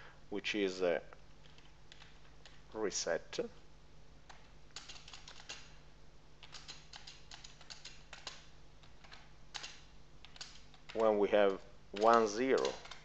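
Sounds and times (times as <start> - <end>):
low steady hum: 0.0 - 13.0
keyboard key clicks: 6.4 - 11.1, 12.0 - 13.0.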